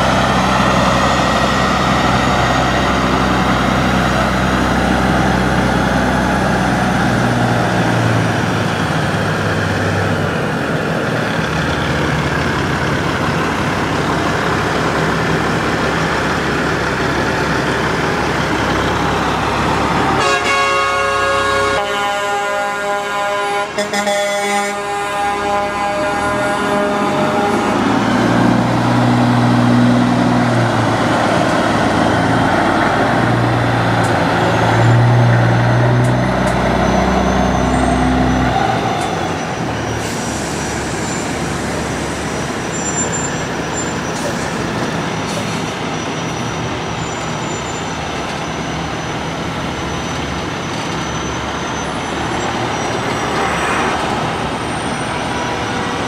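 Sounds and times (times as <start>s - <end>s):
traffic noise: 0.0s - 56.0s
truck diesel engine passing: 0.0s - 56.0s
air horn: 20.2s - 27.8s, 53.3s - 54.1s.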